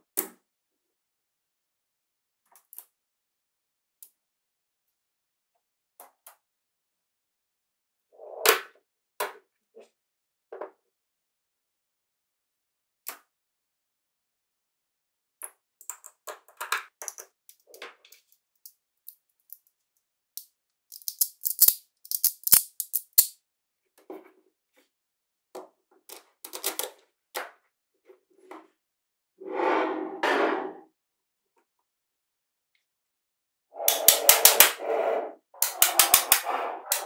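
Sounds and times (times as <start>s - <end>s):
magnet balls rattling: 20.4s - 23.4s, 35.6s - 37.0s
magnetic balls clicking together: 20.9s - 23.3s.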